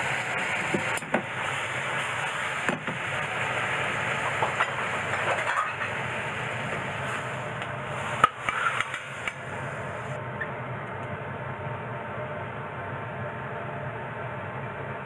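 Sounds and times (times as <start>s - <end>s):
vegetables sizzling in a frying pan: 0.0s - 10.2s
pan clattering and scraping: 4.2s - 6.0s.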